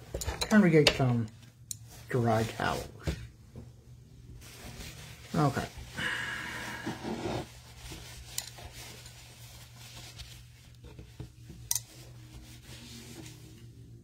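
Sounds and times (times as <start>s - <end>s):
paintbrush rubbing on paper towel: 4.4s - 6.0s, 6.6s - 14.0s.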